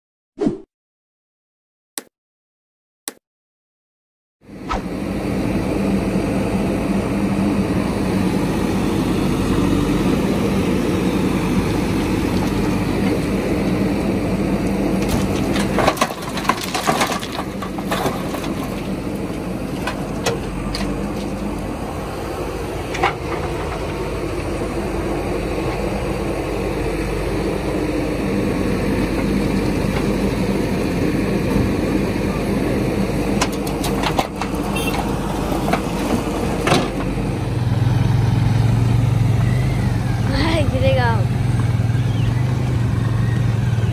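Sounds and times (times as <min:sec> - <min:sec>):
diesel engine running: 0:04.4 - 0:43.9
soil and stones clattering into metal bed: 0:15.0 - 0:21.7, 0:33.4 - 0:37.0.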